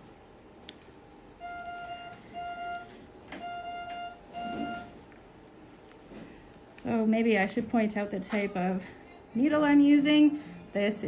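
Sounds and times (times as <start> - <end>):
electronic beeping: 1.4 - 5.0.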